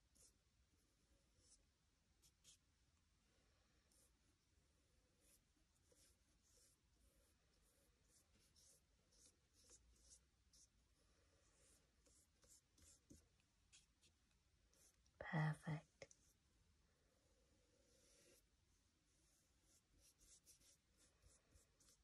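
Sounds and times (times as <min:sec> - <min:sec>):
paintbrush swishing on paper: 0:05.1 - 0:15.0, 0:17.8 - 0:22.0.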